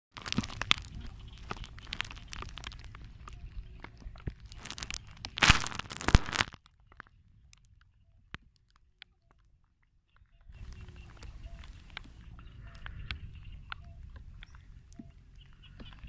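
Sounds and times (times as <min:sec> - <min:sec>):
crackles and clicks: 0:00.1 - 0:16.0
wind buffeting microphone: 0:00.5 - 0:05.4, 0:10.4 - 0:16.0.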